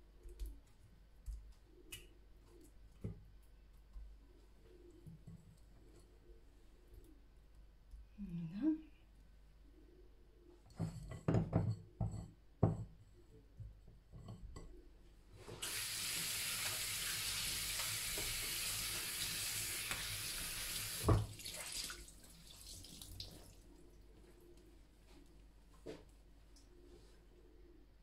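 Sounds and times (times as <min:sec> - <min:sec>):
kitchen tap running: 0:15.6 - 0:23.4.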